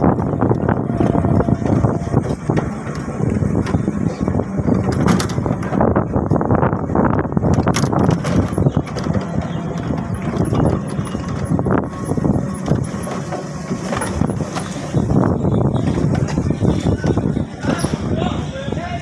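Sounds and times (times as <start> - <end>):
motorcycle riding: 0.0 - 18.5
wind rushing on microphone: 0.0 - 19.0.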